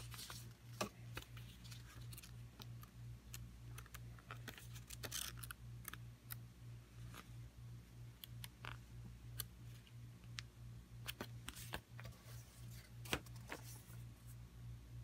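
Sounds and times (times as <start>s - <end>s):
paper rustling and crackling: 0.0s - 2.4s
booklet pages flipping: 0.0s - 6.0s, 11.0s - 14.0s
faint low hum: 0.0s - 15.0s.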